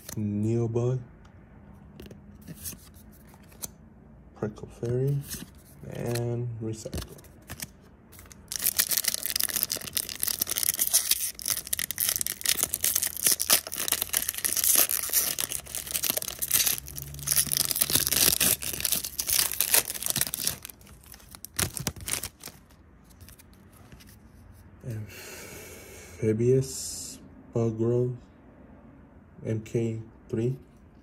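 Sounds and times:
foil wrapper tearing and crinkling: 0:07.4 - 0:23.4.

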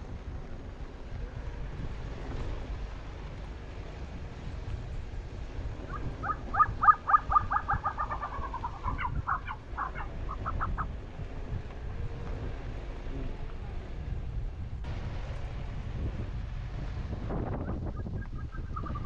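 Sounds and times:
low wind rumble: 0:00.0 - 0:19.0
bird calling: 0:05.7 - 0:11.0, 0:17.6 - 0:19.0.

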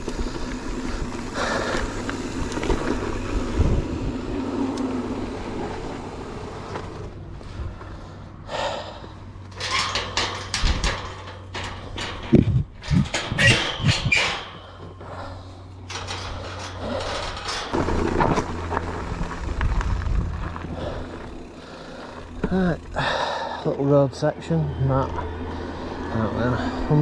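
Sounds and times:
bike tyre and trail noise: 0:00.0 - 0:27.0.

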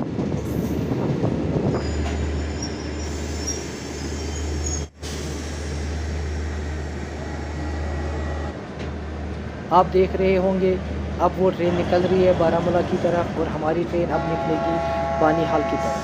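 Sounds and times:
train rumbling past: 0:00.0 - 0:16.0
high wheel squeals: 0:01.8 - 0:04.9.

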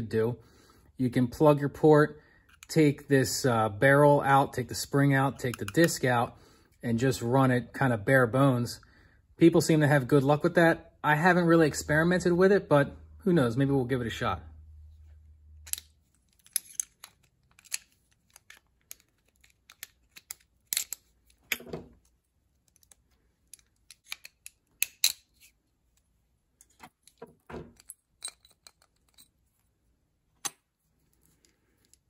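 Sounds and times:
small metal parts clicking and clinking: 0:15.6 - 0:26.0, 0:26.6 - 0:29.8.

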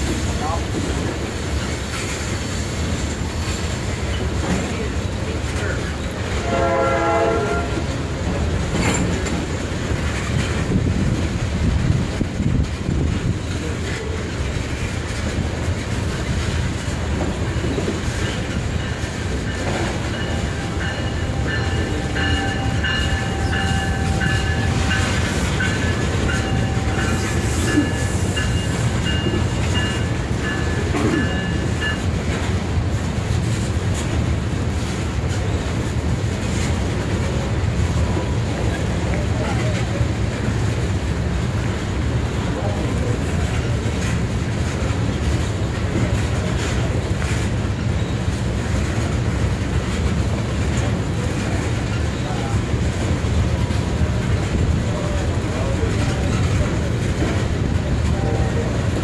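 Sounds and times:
freight train rolling past: 0:00.0 - 0:59.0
train wheel squealing: 0:01.2 - 0:04.9, 0:17.4 - 0:32.1.

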